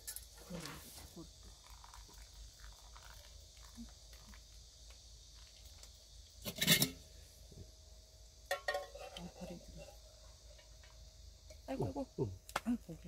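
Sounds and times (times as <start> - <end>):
metal pot clattering: 6.4 - 7.0, 8.5 - 9.9
pot clinking against metal cup: 6.4 - 7.0, 8.5 - 9.3.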